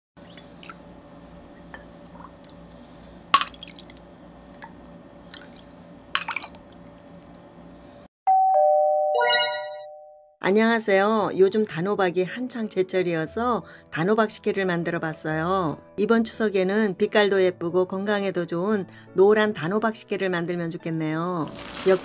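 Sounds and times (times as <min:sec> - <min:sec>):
ding-dong chime: 0:08.3 - 0:10.3.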